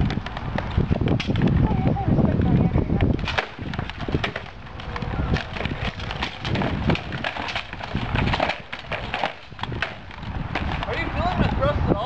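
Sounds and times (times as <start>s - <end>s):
sharp clacks of equipment: 3.2s - 10.9s.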